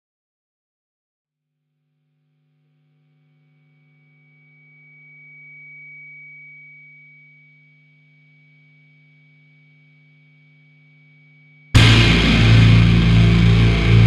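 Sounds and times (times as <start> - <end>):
thin high whistle: 4.2 - 11.7
electronic drone: 11.8 - 14.0
low hum: 11.8 - 14.0.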